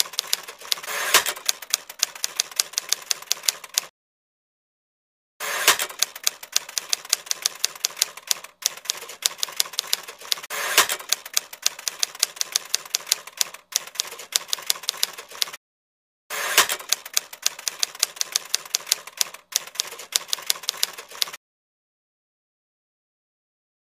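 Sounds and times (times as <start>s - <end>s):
loud typewriter strokes: 0.0s - 3.9s, 5.4s - 15.6s, 16.3s - 21.4s
typewriter keystrokes: 0.0s - 3.9s, 5.6s - 15.6s, 16.5s - 21.4s.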